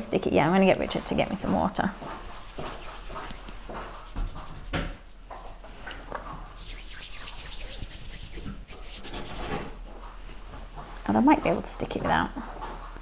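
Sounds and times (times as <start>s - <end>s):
hands rubbing together: 2.3s - 5.4s, 6.6s - 9.8s.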